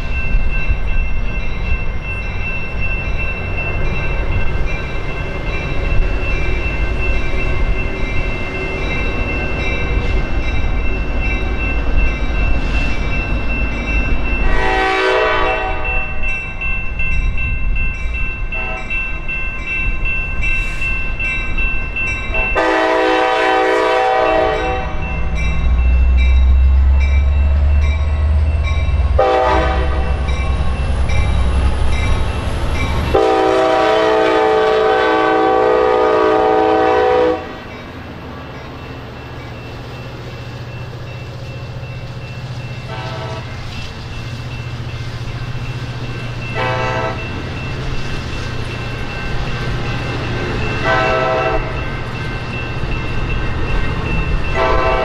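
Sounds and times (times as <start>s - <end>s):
crossing bell dinging: 0.0s - 55.0s
locomotive horn blasts: 14.4s - 16.1s, 18.6s - 18.9s, 22.6s - 25.0s, 29.2s - 30.2s, 33.1s - 37.6s, 42.9s - 43.6s, 46.6s - 47.2s, 50.8s - 51.7s, 54.6s - 55.0s.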